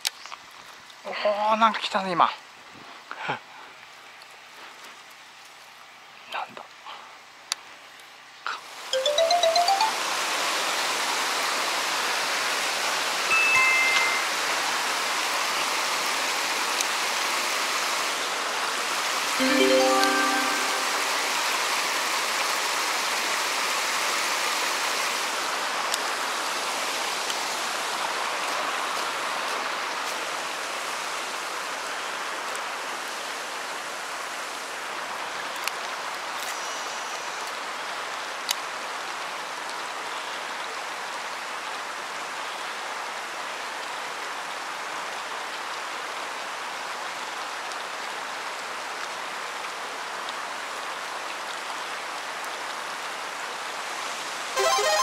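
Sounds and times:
running water rushing: 8.7 - 35.4.

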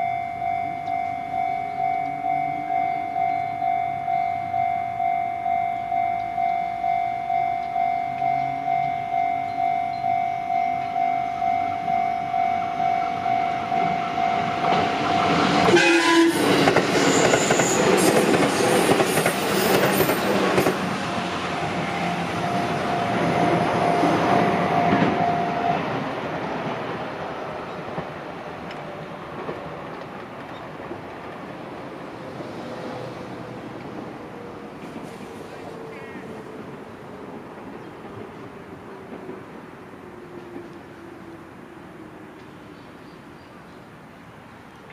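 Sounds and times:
level-crossing warning bell ringing: 0.0 - 16.3, 21.1 - 26.0
train horn blast: 11.2 - 17.8, 21.6 - 25.9
train wheels rumbling and clattering: 13.9 - 41.6.

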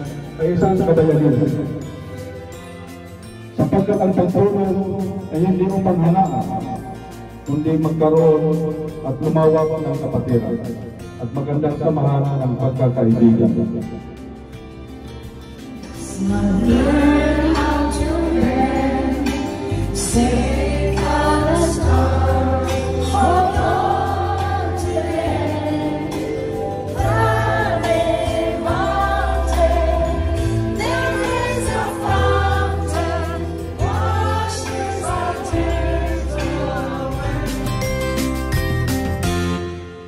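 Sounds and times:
voices singing slow song: 15.7 - 38.6.

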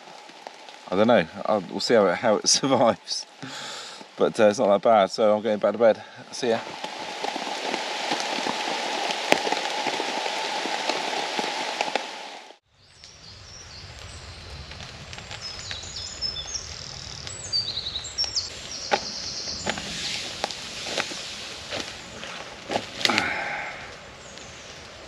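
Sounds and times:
rain drumming on a tarp: 0.0 - 12.6, 13.9 - 17.4, 18.0 - 25.0
birds singing: 12.8 - 20.2.

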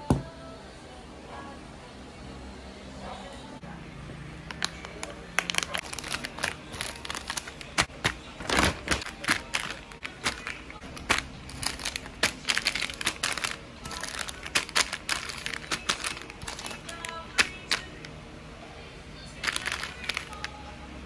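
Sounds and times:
plastic and foil sachets crinkling: 4.5 - 18.0, 19.4 - 20.6.

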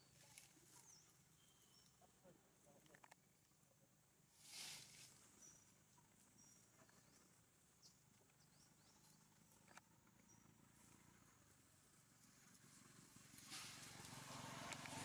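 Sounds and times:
faint high chirps: 0.0 - 2.1.

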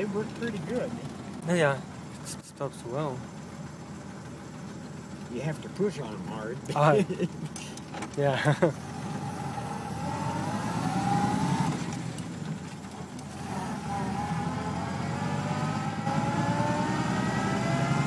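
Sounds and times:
car engine accelerating: 0.0 - 18.0.

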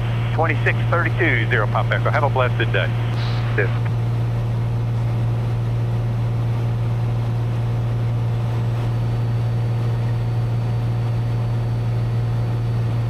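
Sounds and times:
propeller plane engine droning: 0.0 - 13.0.

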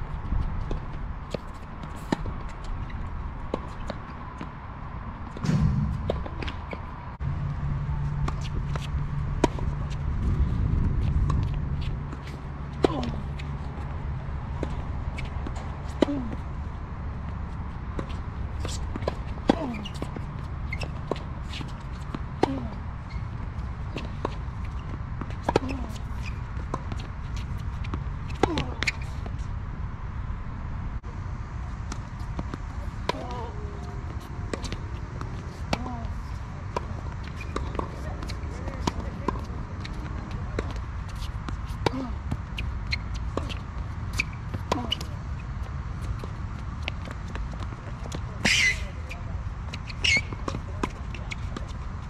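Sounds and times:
steady low rumble: 5.3 - 15.8
tennis racket hitting ball: 5.4 - 6.9.

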